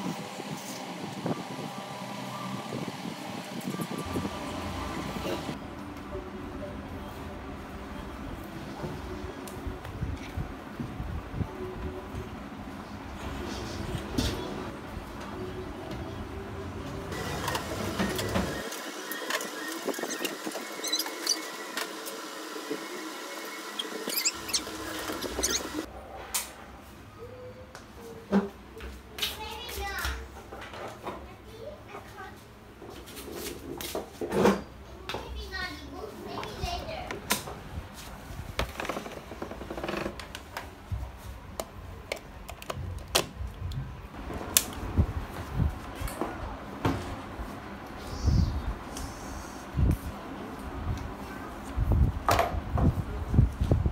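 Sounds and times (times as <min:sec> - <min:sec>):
short high squeaks: 0:19.2 - 0:21.7, 0:23.5 - 0:25.9.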